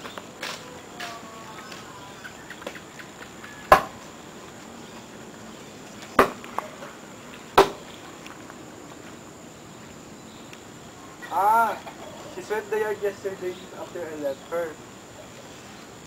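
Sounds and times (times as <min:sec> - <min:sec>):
axe chopping wooden log: 0:03.7 - 0:04.0, 0:06.2 - 0:06.4, 0:07.6 - 0:07.8.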